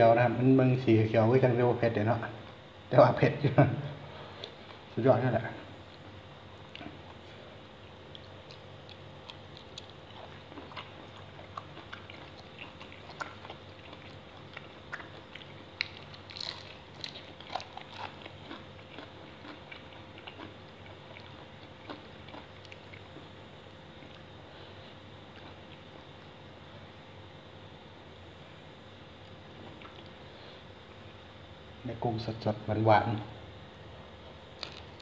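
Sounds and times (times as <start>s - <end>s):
faint steady hum: 0.0s - 35.0s
man chewing crunchy food: 5.8s - 26.4s, 29.2s - 30.2s, 34.6s - 35.0s.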